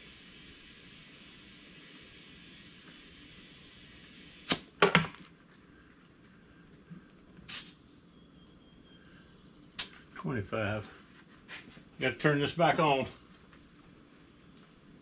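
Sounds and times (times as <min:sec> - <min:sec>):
short bursts of air: 0:00.0 - 0:04.8, 0:07.5 - 0:08.2, 0:09.8 - 0:10.1
faint steady hiss: 0:00.0 - 0:15.0.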